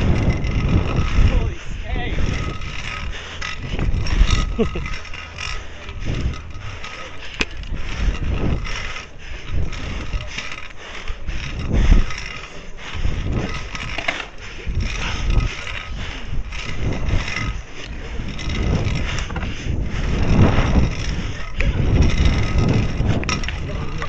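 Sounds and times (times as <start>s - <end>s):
scooter wheels rolling on concrete: 0.0s - 24.0s.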